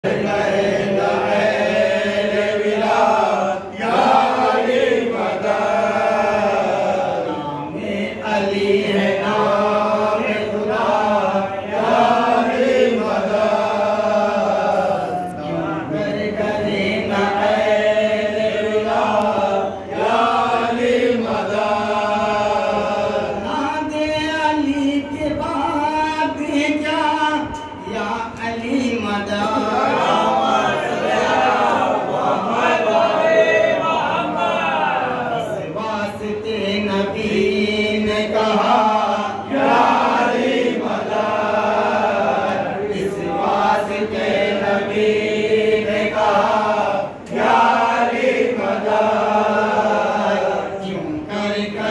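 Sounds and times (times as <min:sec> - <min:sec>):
men chanting: 0:00.0 - 0:51.9.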